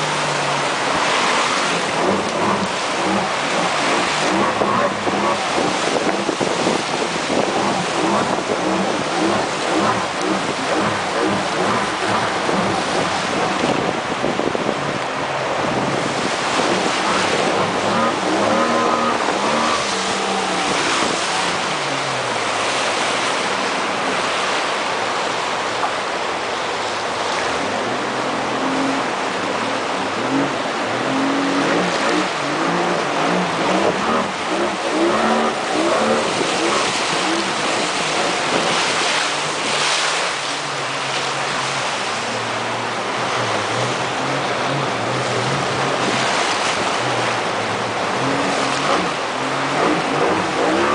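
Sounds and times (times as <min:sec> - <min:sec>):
wind on microphone: 0:00.0 - 0:24.6
outboard motor running: 0:00.0 - 0:24.7, 0:26.9 - 0:50.9
river rapids rushing and splashing: 0:00.0 - 0:50.9.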